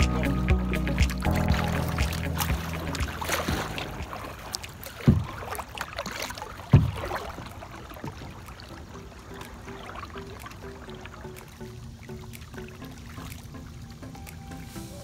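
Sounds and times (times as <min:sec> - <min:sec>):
low thumps: 0:00.0 - 0:05.4
paddle splashing and dripping: 0:00.0 - 0:15.0.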